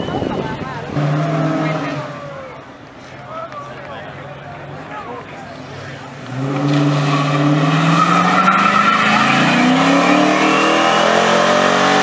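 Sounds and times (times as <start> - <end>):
car engine revving: 0.9 - 2.6, 6.0 - 12.0.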